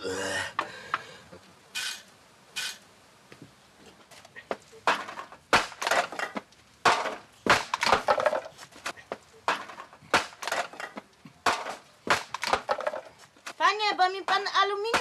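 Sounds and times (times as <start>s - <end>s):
hard objects clattering and knocking: 4.5s - 13.6s.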